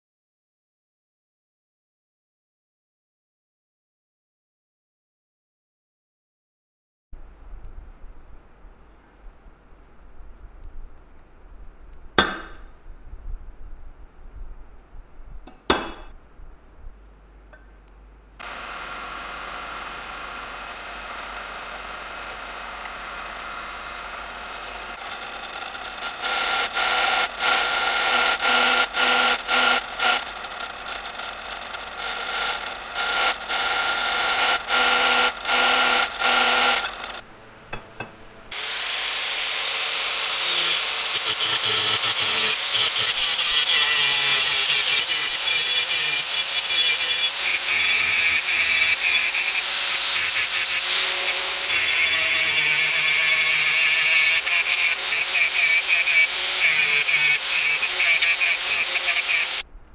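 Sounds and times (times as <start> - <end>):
drill press boring through steel: 18.4 - 59.6
angle grinder cutting steel: 18.4 - 59.7.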